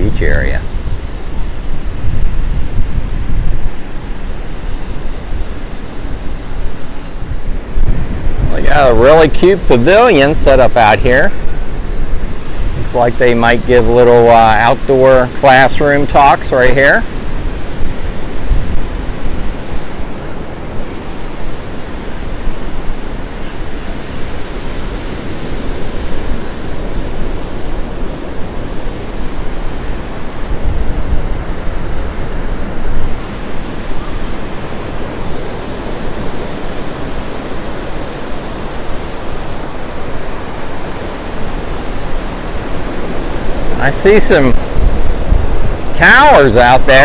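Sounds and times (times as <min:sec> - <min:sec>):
surf breaking on beach: 0:00.0 - 0:47.0
wind buffeting microphone: 0:00.0 - 0:47.0.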